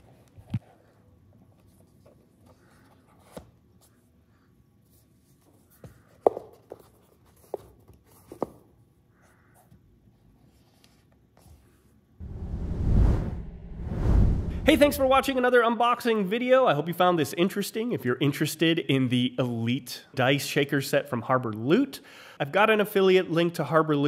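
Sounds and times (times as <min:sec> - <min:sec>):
loud even noise: 0:12.2 - 0:15.4.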